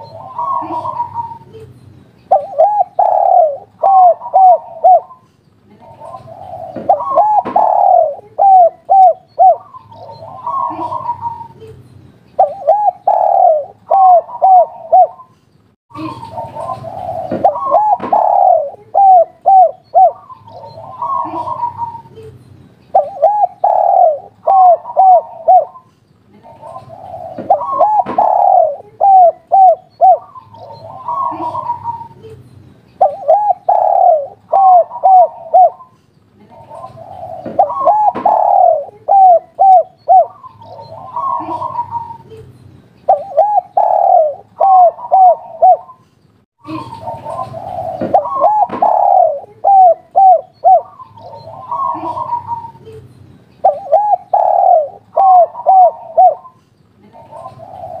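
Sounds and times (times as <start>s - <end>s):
dove cooing: 0.0s - 1.7s, 2.3s - 5.2s, 5.8s - 11.7s, 12.4s - 15.3s, 16.0s - 32.4s, 33.0s - 42.5s, 43.1s - 46.0s, 46.7s - 58.0s.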